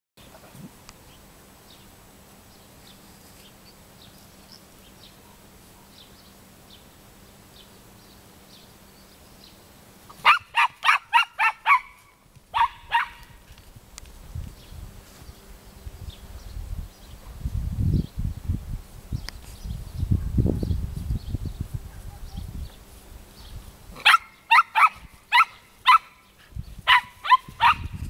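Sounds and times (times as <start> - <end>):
dog barking sharply: 10.2 - 12.0, 12.6 - 13.2, 24.0 - 26.2, 26.9 - 27.9.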